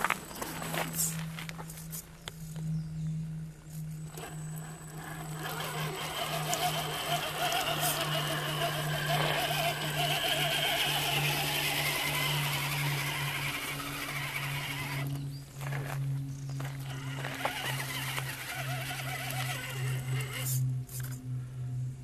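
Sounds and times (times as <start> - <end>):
low hum: 0.0 - 22.0
electric motor whining: 3.7 - 21.2.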